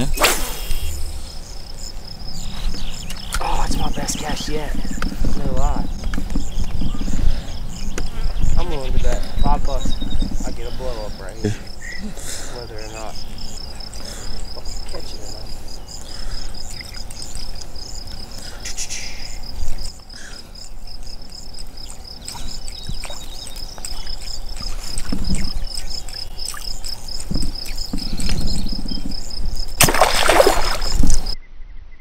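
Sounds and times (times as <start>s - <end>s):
insects chirping: 0.0s - 31.4s.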